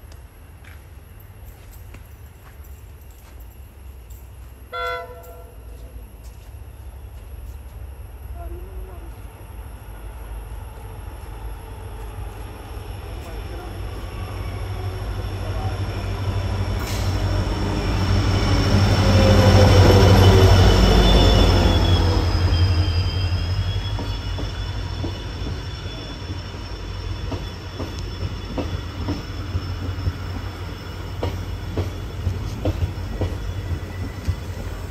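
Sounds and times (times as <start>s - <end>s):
train rumbling past: 0.0s - 34.9s
brake and wheel squeal: 19.9s - 34.9s.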